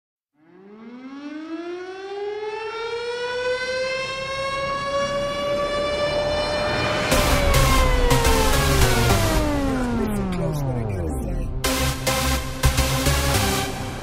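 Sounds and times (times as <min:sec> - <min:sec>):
siren winding up: 0:05.6 - 0:11.9.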